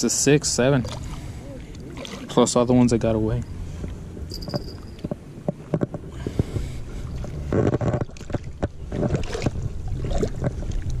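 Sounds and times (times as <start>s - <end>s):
wind rumble on microphone: 3.7s - 11.0s.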